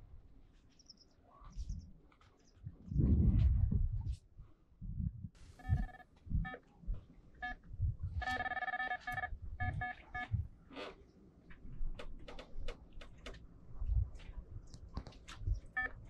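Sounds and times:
bite alarm beeping: 5.6s - 6.6s, 8.2s - 10.4s.

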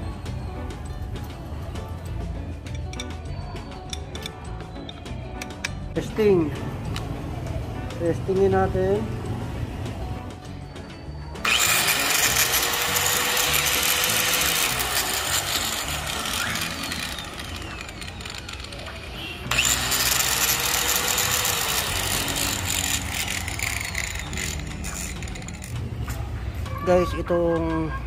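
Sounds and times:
angle grinder running: 11.4s - 25.8s.

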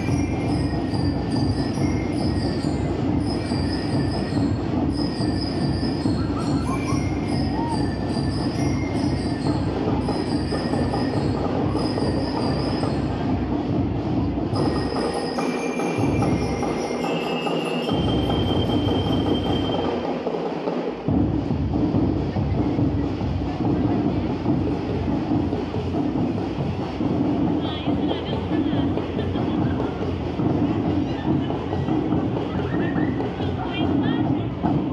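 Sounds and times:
high bell-like tones: 0.0s - 13.3s, 14.5s - 20.0s
rapid drum beat: 0.0s - 34.9s.

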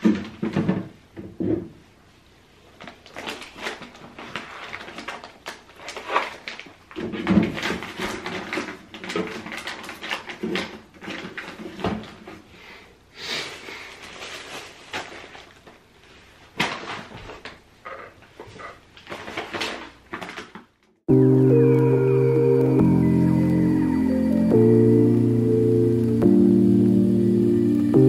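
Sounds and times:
packaging rustling: 2.6s - 12.5s, 13.4s - 21.0s.

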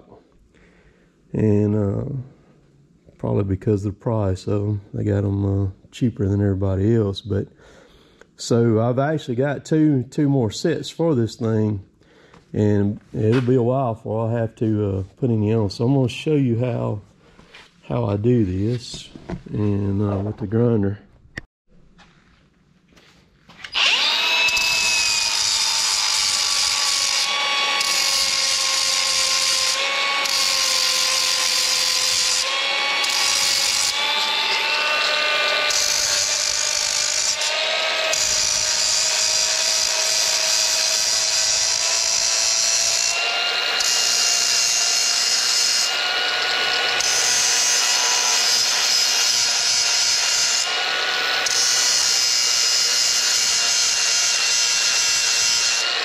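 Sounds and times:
angle grinder grinding metal: 23.6s - 56.0s.

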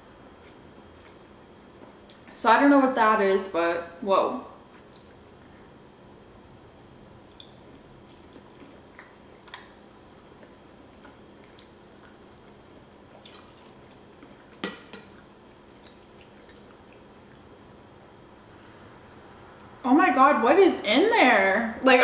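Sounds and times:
person chewing: 0.4s - 1.4s, 4.6s - 5.2s, 6.7s - 17.5s.

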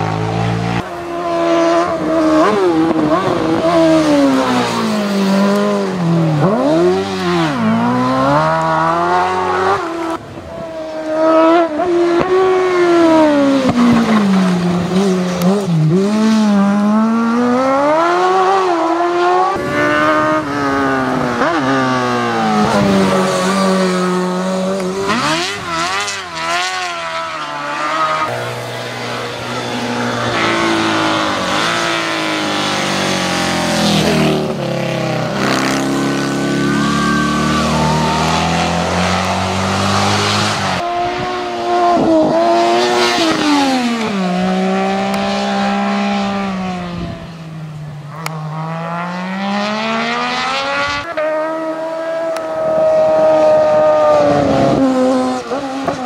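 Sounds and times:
racing engines revving: 0.0s - 56.0s.

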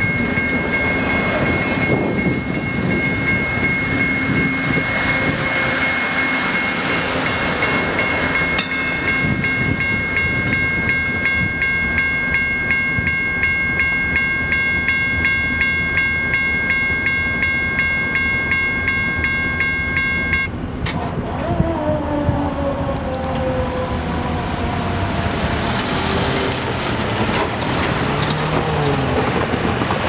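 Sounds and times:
railroad crossing bell: 0.0s - 20.6s
train wheels rumbling on rails: 0.0s - 30.0s.

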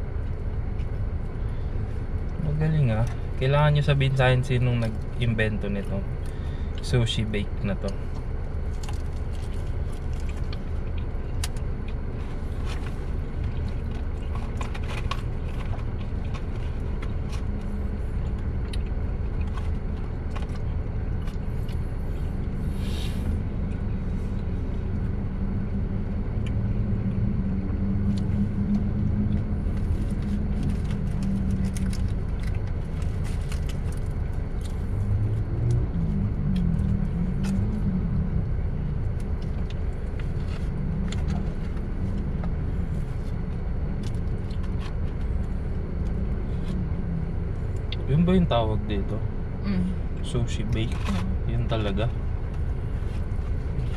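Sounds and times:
car engine idling: 0.0s - 53.9s.

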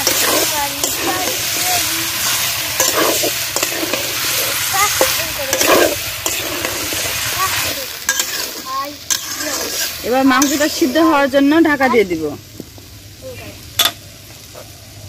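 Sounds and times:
spatula scraping a pan: 0.0s - 11.2s
chicken sizzling in oil: 0.0s - 15.0s.

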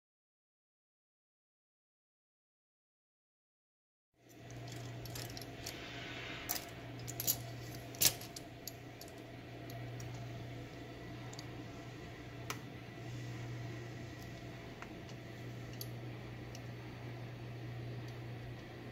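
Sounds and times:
steady low hum: 4.2s - 18.9s.

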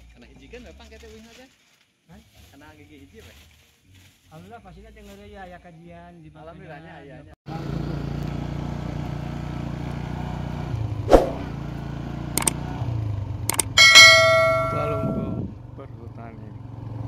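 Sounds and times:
sharp clicks: 13.5s - 14.4s
ringing metallic clang: 13.5s - 15.4s
low hum: 13.5s - 15.5s.

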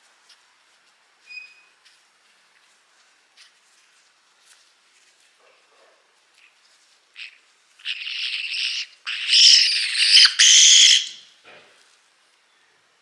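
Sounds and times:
parrot screeching harshly: 7.2s - 11.3s.

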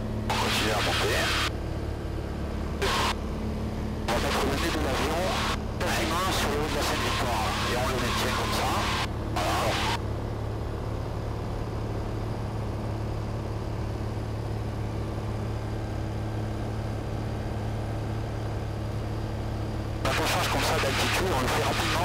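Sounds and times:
light aircraft engine droning: 0.0s - 22.0s.

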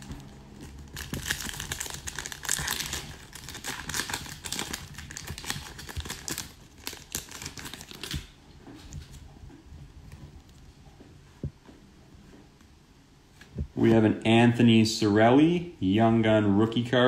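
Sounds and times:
foil wrapper crinkling: 0.0s - 8.4s.

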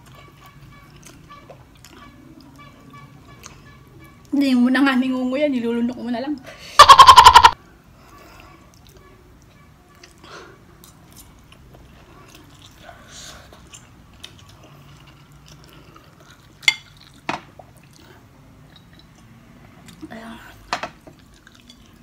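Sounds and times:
noodles slurped and chewed: 9.9s - 20.1s, 21.1s - 22.0s.

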